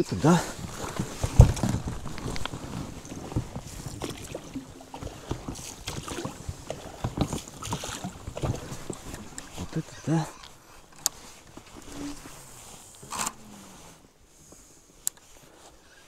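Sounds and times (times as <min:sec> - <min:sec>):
wind noise: 0:00.0 - 0:09.8
water noise: 0:00.0 - 0:14.2
knocks in a small boat: 0:00.7 - 0:09.6
heavy thump: 0:01.0 - 0:02.5.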